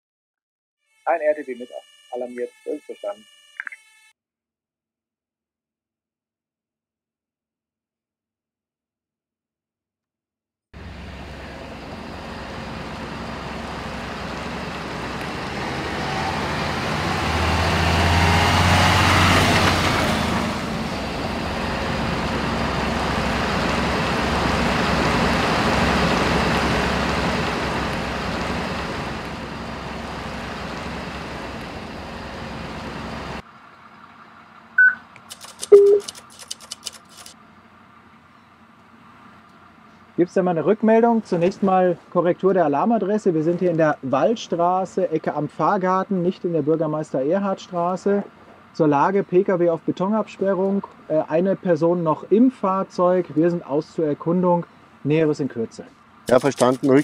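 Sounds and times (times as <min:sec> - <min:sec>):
short beeps from handheld radio: 0:01.0 - 0:04.2, 0:34.8 - 0:35.0, 0:35.6 - 0:36.2
fire engine driving by: 0:10.8 - 0:57.0.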